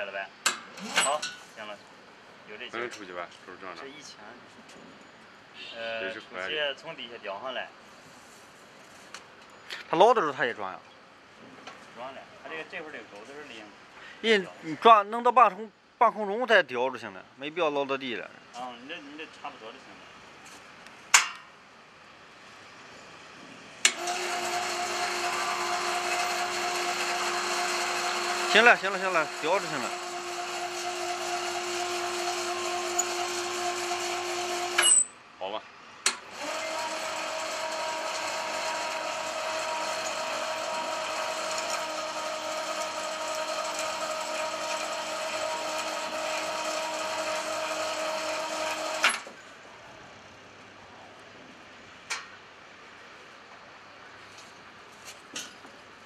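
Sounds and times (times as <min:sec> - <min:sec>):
electric winch whining: 0:00.8 - 0:01.2, 0:23.8 - 0:35.0, 0:36.2 - 0:49.4.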